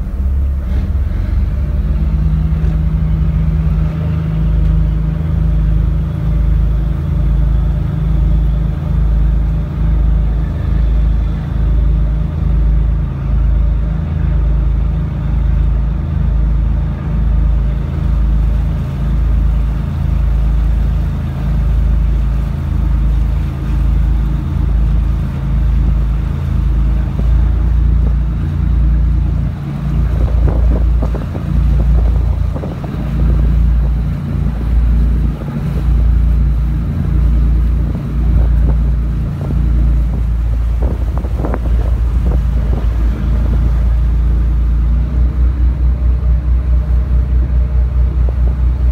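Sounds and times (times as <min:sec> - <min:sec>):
rough rushing noise: 0:00.0 - 0:07.2, 0:19.4 - 0:48.9
boat engine droning: 0:00.0 - 0:48.9.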